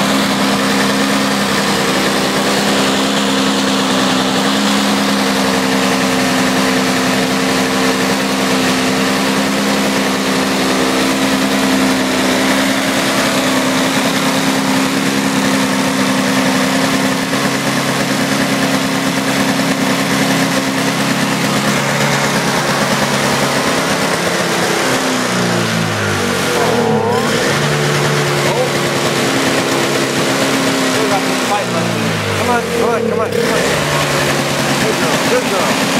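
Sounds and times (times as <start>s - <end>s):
snowblower engine running: 0.0s - 35.9s.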